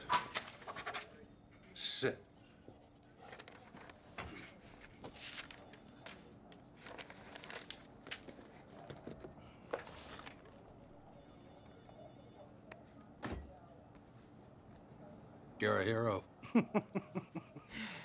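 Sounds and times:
faint hum: 0:00.0 - 0:18.0
soft footsteps and shuffling: 0:03.2 - 0:10.8, 0:12.8 - 0:15.6.

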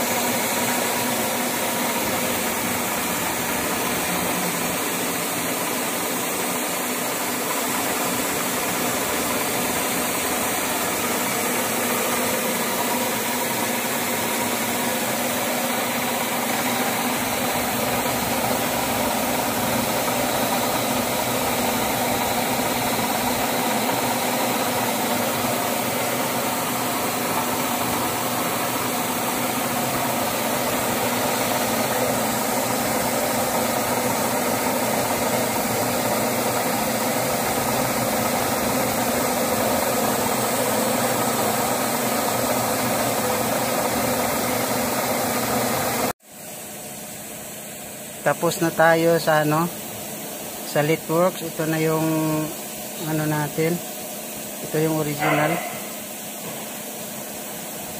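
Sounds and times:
lathe machine hum: 0:00.0 - 0:46.1.

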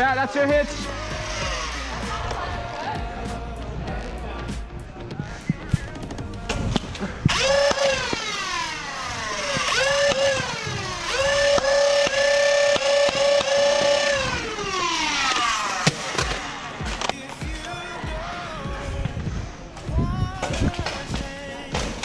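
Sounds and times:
flywheel motors whining: 0:06.8 - 0:17.2.

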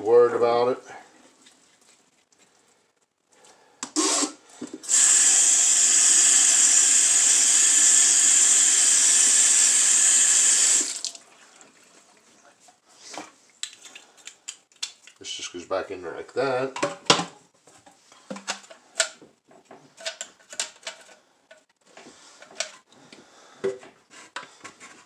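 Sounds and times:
faucet running into steel sink: 0:04.9 - 0:11.2.

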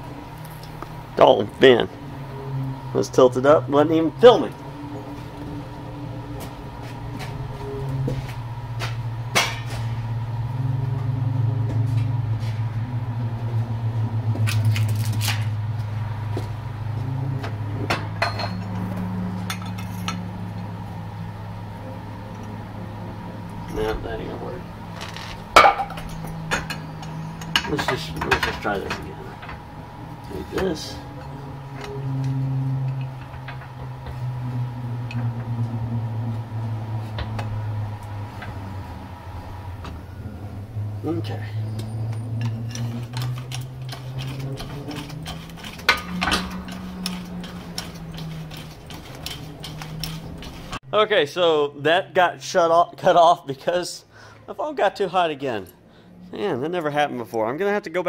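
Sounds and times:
low machine hum: 0:00.0 - 0:58.0
metal clinks and knocks: 0:17.8 - 0:20.3, 0:24.9 - 0:35.4, 0:41.6 - 0:50.8.

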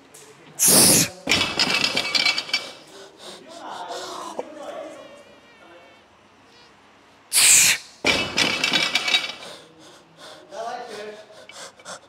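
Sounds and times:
hard breathing: 0:00.6 - 0:01.2, 0:01.9 - 0:04.5, 0:08.7 - 0:12.0
strained voice sounds: 0:00.6 - 0:01.2
weights rattling and clattering: 0:01.3 - 0:02.8, 0:08.0 - 0:09.4.

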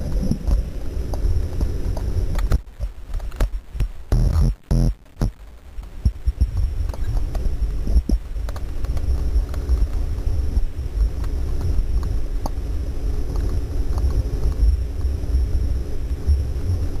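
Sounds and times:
water rumbling against camera housing: 0:00.0 - 0:04.6
constant hum: 0:00.0 - 0:17.0.

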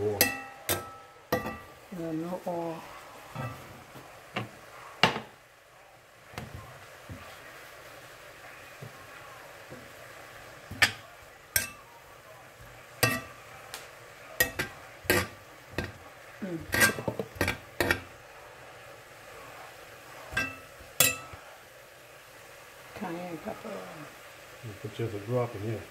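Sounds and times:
metal spoon scraping cast-iron pan: 0:13.0 - 0:13.4, 0:14.4 - 0:16.0, 0:16.6 - 0:18.2.

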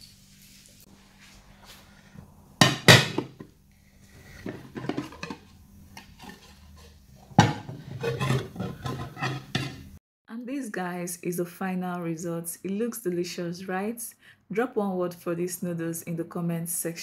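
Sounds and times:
ceramic plates clattering: 0:02.6 - 0:03.4, 0:04.4 - 0:10.0.

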